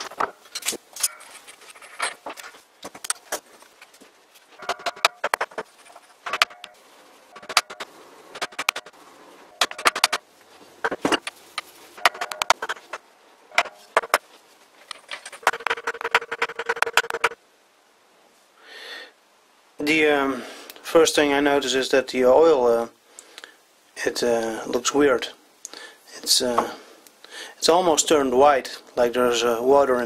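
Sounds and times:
metal parts clicking and clinking: 0:00.0 - 0:03.3, 0:04.6 - 0:08.9, 0:09.5 - 0:10.2, 0:12.0 - 0:14.2, 0:14.8 - 0:17.4.

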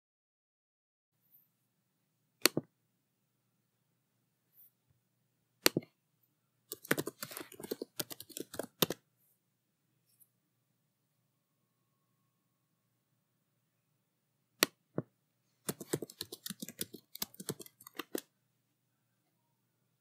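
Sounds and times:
computer mouse clicks: 0:02.4 - 0:02.6, 0:06.7 - 0:09.0, 0:15.7 - 0:18.3
keystrokes on computer keyboard: 0:06.7 - 0:09.0, 0:15.7 - 0:18.3.

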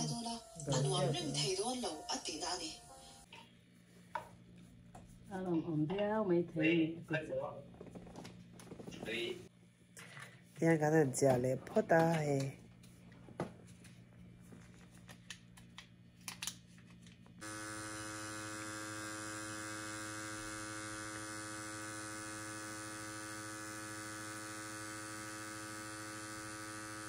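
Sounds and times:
electric buzzing machine: 0:00.0 - 0:03.3, 0:17.4 - 0:27.0.

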